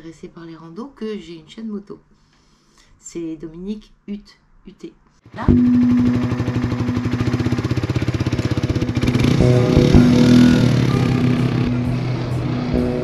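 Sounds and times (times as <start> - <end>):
motorcycle engine idling: 5.4 - 13.0
shifting tones: 5.4 - 13.0.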